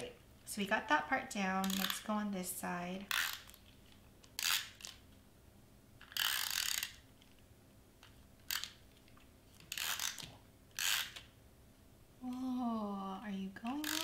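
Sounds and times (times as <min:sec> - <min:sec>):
tape runner rolling: 0:06.0 - 0:07.4, 0:08.1 - 0:11.3.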